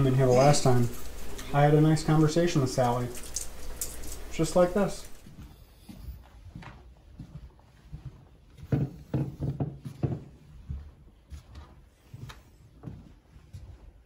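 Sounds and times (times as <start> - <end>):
soft footsteps indoors: 0.0 - 14.0.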